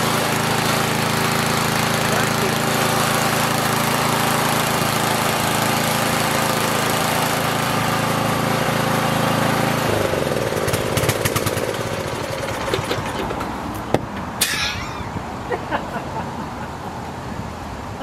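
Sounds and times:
small engine running: 0:00.0 - 0:12.9.

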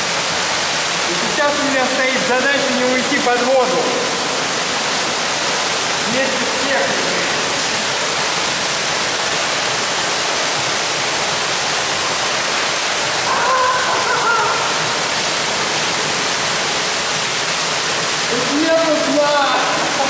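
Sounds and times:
loud rush of falling water: 0:00.0 - 0:20.0
person calling out: 0:13.3 - 0:15.0.

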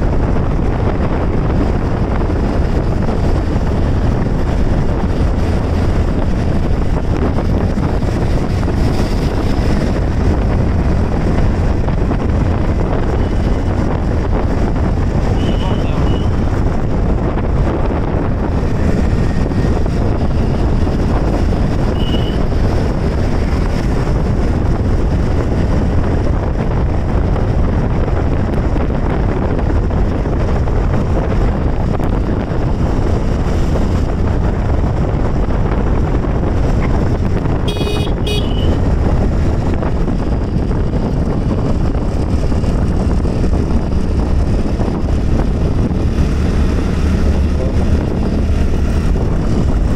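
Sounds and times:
motorbike engine and road noise: 0:00.0 - 0:49.9
wind rushing over microphone: 0:00.0 - 0:49.9
horn toot: 0:37.7 - 0:38.8.

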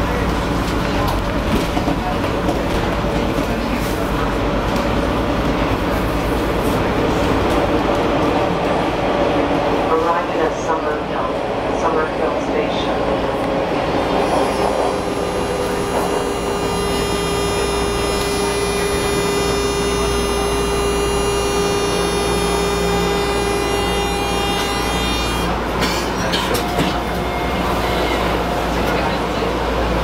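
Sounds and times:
subway car whine: 0:00.0 - 0:30.0
wheels rumbling on rail: 0:00.0 - 0:30.0.

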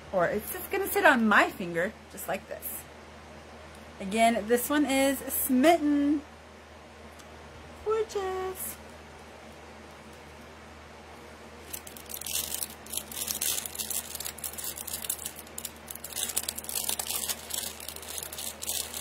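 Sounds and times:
packaging crinkling: 0:11.6 - 0:19.0.

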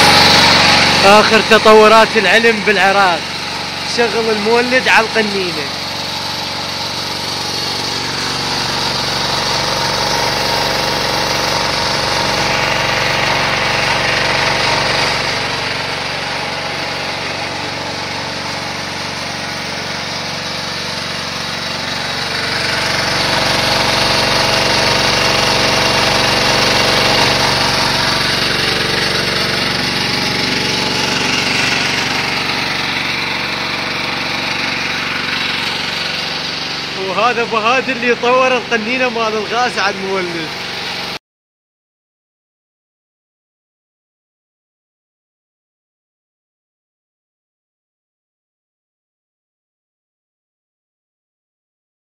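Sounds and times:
generator engine running: 0:00.0 - 0:41.2.

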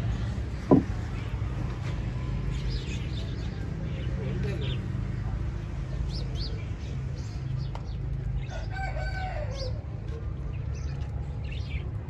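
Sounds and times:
rooster crowing: 0:08.5 - 0:09.8.

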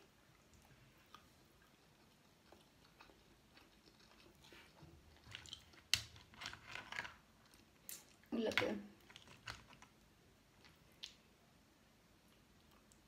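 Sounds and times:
chewing and crunching: 0:00.0 - 0:08.3, 0:09.0 - 0:10.0.

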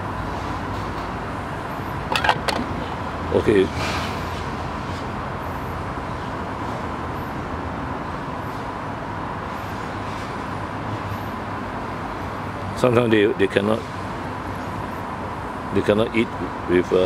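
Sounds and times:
steady background noise: 0:00.0 - 0:17.0.

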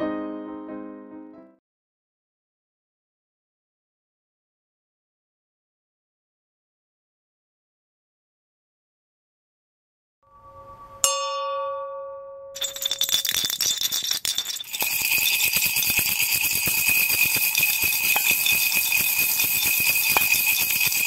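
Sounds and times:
bell chime ringing: 0:10.3 - 0:13.1
jingle bells shaking: 0:12.6 - 0:21.0.

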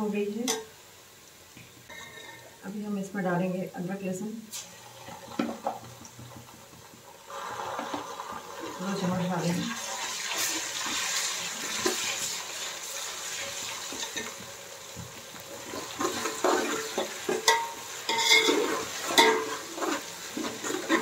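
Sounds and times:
onions sizzling in hot oil: 0:00.0 - 0:21.0
metal spoon scraping a pot: 0:15.8 - 0:21.0.

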